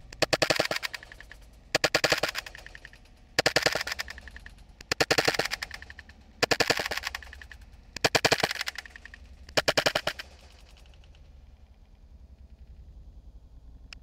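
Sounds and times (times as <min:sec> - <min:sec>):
airsoft pistol firing: 0:00.1 - 0:11.2.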